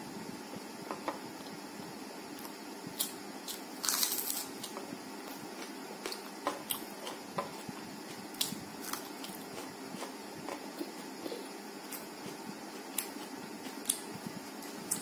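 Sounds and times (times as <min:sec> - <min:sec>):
food crunch: 0:03.0 - 0:07.5.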